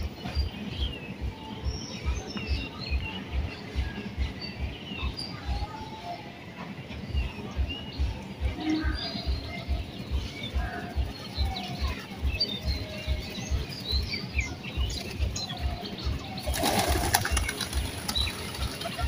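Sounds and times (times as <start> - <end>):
small birds chirping: 0.0 - 19.0
pigeon wings flapping: 16.4 - 19.0.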